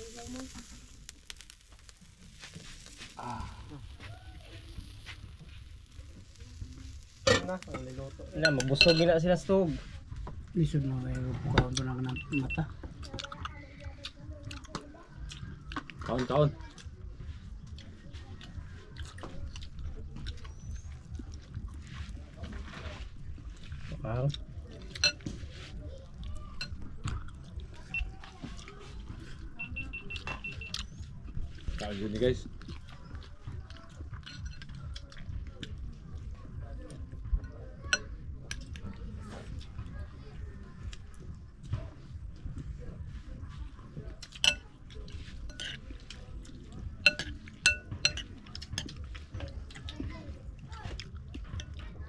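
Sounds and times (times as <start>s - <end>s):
low background murmur: 0.0s - 52.0s
clinks and knocks of a meal: 7.2s - 9.2s, 24.8s - 25.5s, 26.5s - 27.3s, 32.6s - 35.4s, 44.2s - 50.1s
short high electronic beeps: 29.6s - 30.8s.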